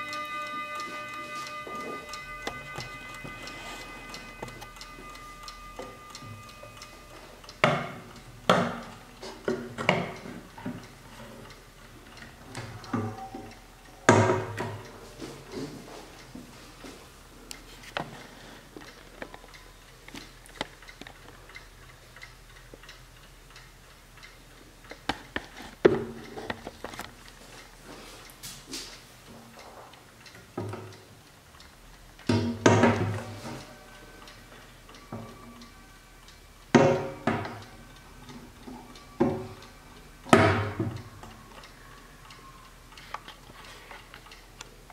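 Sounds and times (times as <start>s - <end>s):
mantel clock chiming: 0.0s - 16.9s, 30.0s - 44.9s
clock ticking: 0.0s - 44.9s.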